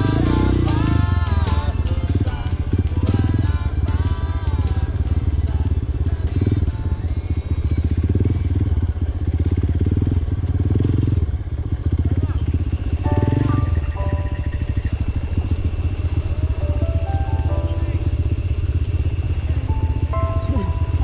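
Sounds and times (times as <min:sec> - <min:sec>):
dirt bike engine running: 0:00.0 - 0:21.0
melodic music: 0:12.9 - 0:21.0.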